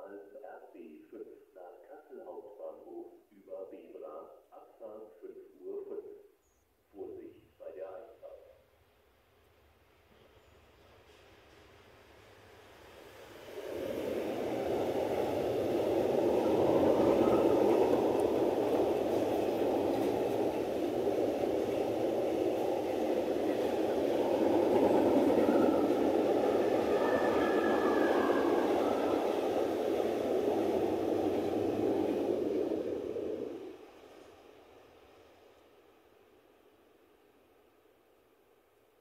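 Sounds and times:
train passing rumble: 0.0 - 6.1, 7.0 - 38.9
faint high squeal: 25.3 - 29.3.

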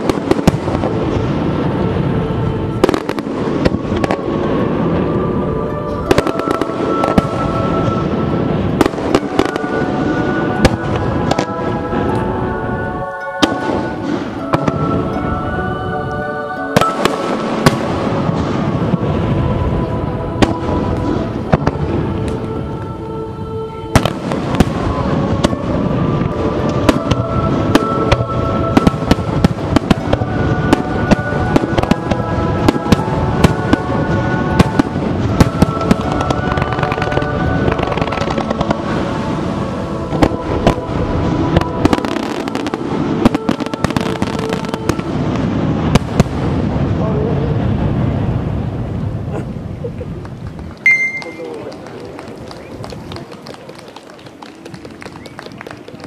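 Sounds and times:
music with long held notes: 0.0 - 49.1
fireworks bursting: 0.0 - 56.0.

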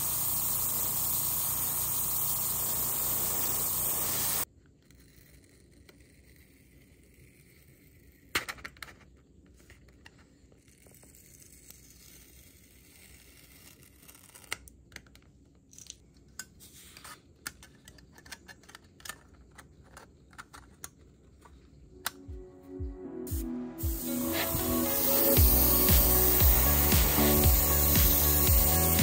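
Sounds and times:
tape peeling crackle: 12.9 - 14.7.

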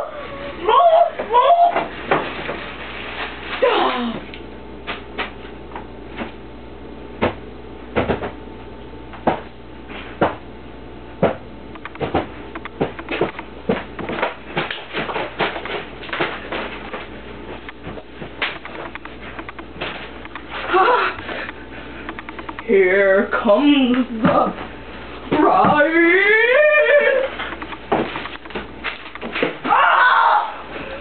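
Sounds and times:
knocks and clicks of handling: 11.2 - 17.0, 17.6 - 20.5, 21.4 - 22.7, 27.4 - 29.6.

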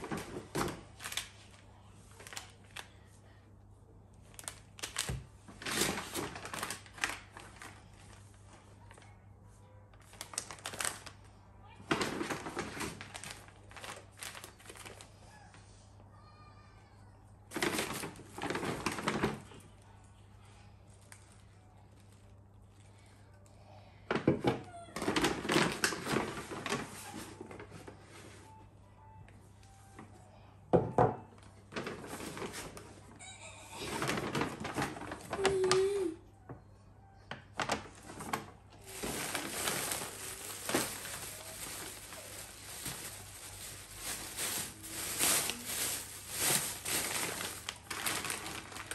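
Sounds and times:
plastic packets rustling: 0.0 - 3.1, 4.2 - 9.1, 9.9 - 15.2, 17.5 - 19.8, 25.0 - 28.2, 31.4 - 36.2, 37.3 - 48.9.

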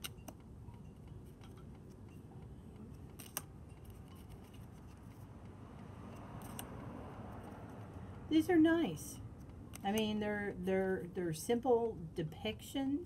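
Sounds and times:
cards clicking and tapping: 0.0 - 6.7
low background hum: 0.0 - 13.0.

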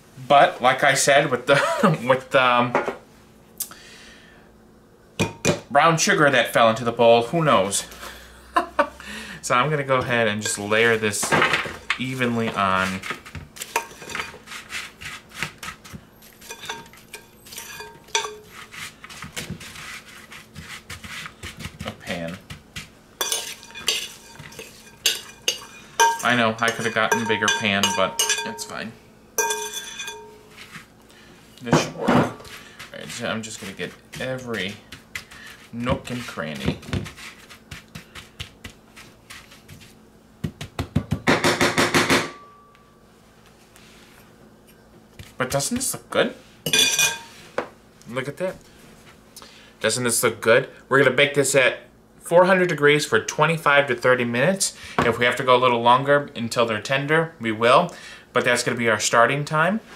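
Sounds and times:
metal spoon scraping sheet pan: 12.0 - 21.4, 23.2 - 28.8
glass and metal clinks: 16.5 - 18.5, 23.2 - 28.8, 29.4 - 30.4, 46.7 - 47.3.

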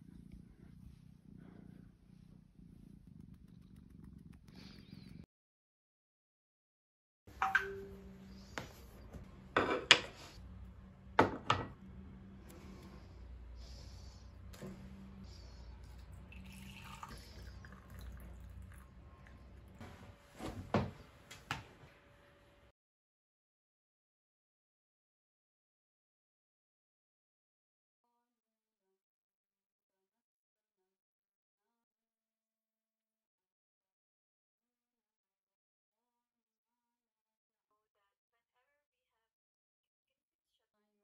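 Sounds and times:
cat purring: 0.0 - 5.3, 7.6 - 20.2
water pouring into mug: 15.9 - 19.4.

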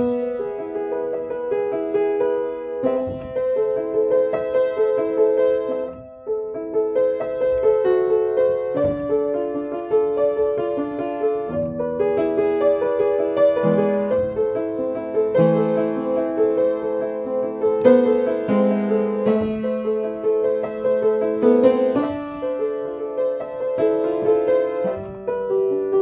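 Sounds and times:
upright piano playing: 0.0 - 26.0.

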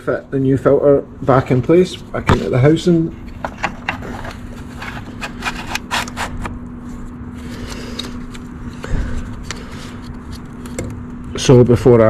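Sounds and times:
steady low hum: 0.0 - 12.0
clicks and scrapes of handling: 3.2 - 8.5.

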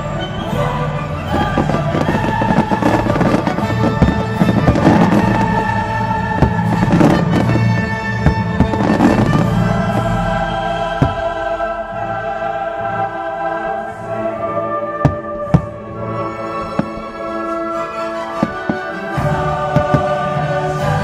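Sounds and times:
choral and orchestral music: 0.0 - 21.0
fireworks crackling: 1.2 - 11.6, 15.0 - 21.0
fireworks bangs: 1.3 - 11.6, 16.6 - 17.6, 18.3 - 20.4.

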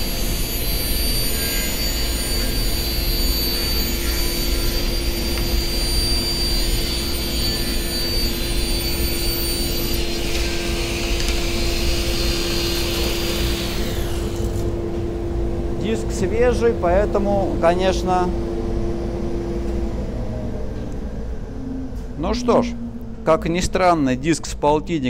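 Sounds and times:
table saw cutting wood: 0.0 - 14.8
dust extractor running: 0.0 - 18.8.

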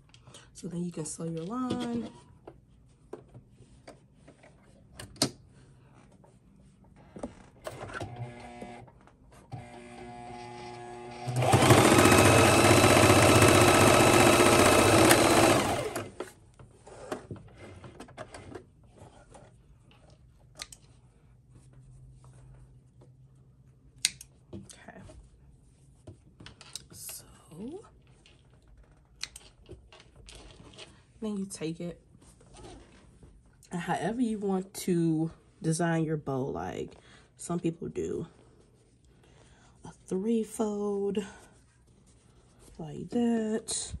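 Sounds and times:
sewing machine stitching: 9.6 - 16.2.

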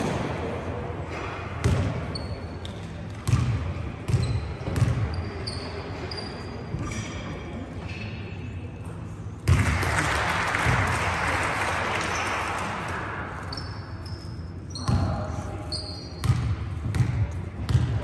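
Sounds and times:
short high squeaks: 5.1 - 6.7, 13.5 - 15.0, 15.7 - 16.2.

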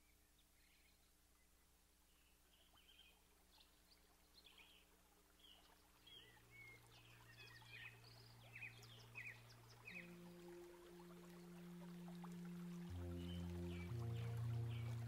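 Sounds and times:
birds chirping: 0.0 - 15.0
low steady hum: 3.2 - 15.0.

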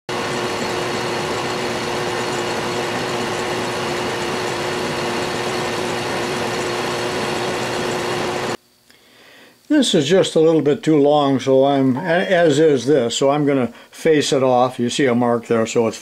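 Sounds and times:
metal lathe running: 0.1 - 8.6.

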